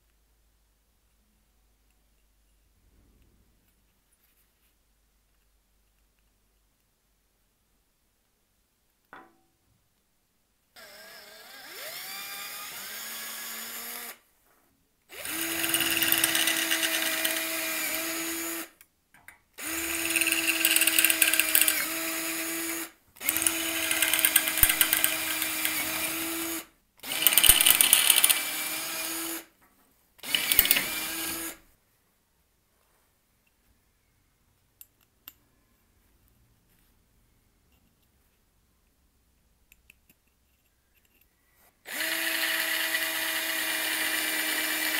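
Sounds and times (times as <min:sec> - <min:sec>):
electric drill boring into wood: 0:10.8 - 0:14.2, 0:15.1 - 0:18.7, 0:19.6 - 0:29.4, 0:30.2 - 0:31.6, 0:41.9 - 0:44.9.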